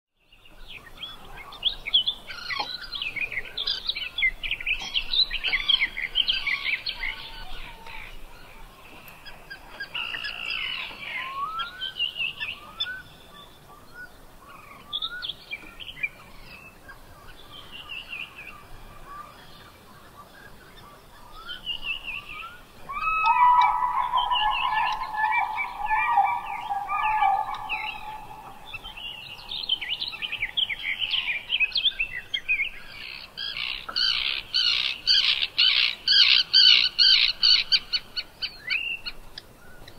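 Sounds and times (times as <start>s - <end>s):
birds chirping: 20.6s - 38.8s.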